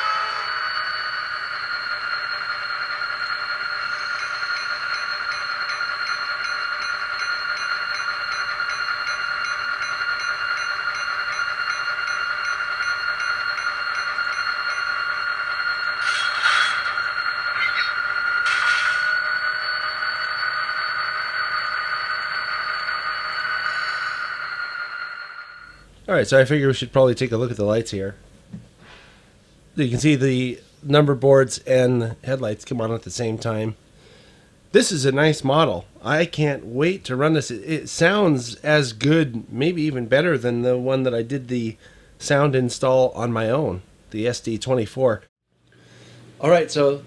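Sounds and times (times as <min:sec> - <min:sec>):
model locomotive diesel hum: 0:00.0 - 0:25.8.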